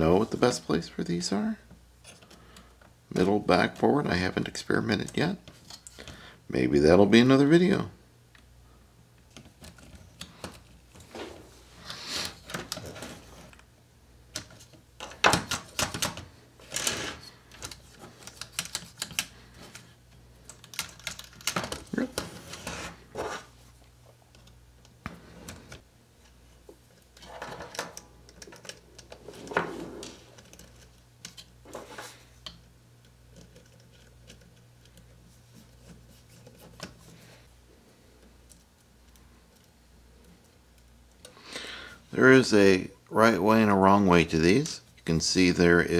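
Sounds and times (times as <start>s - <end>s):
clicks and rattles of small parts: 14.3s - 22.3s, 27.0s - 31.8s.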